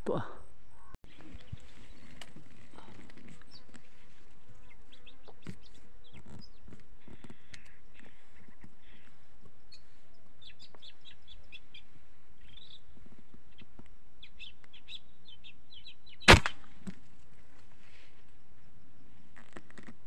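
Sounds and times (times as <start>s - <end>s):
small birds chirping: 0.0s - 16.6s
air rifle shot: 16.3s - 16.7s.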